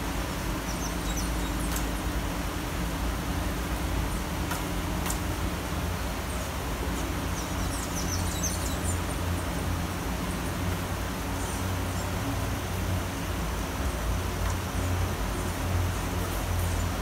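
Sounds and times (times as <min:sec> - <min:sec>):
low traffic rumble: 0:00.0 - 0:17.0
rain falling: 0:00.0 - 0:17.0
bird chirping: 0:00.6 - 0:02.1, 0:06.3 - 0:09.2.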